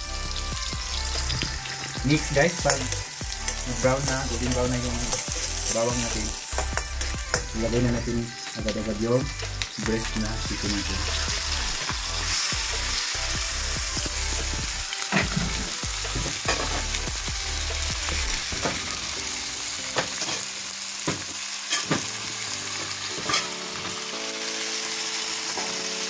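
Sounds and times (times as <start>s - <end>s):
chicken sizzling in hot oil: 0.0s - 26.0s.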